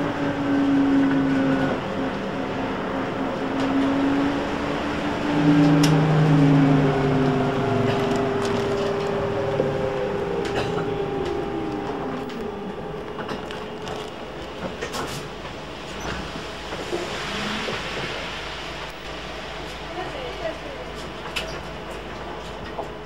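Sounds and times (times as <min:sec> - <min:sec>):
heavy rain: 0:00.0 - 0:20.9
road noise: 0:00.0 - 0:21.2
electric motor whine: 0:04.4 - 0:14.9.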